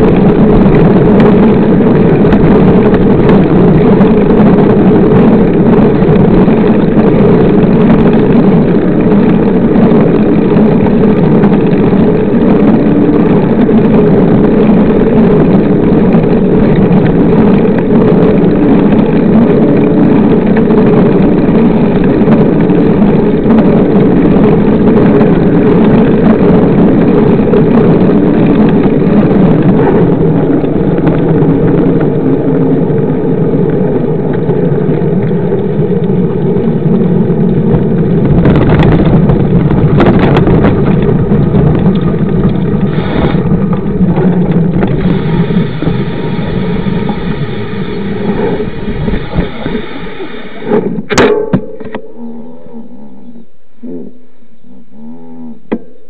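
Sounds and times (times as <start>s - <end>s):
road rumble: 0.0s - 56.0s
wind on microphone: 0.0s - 56.0s.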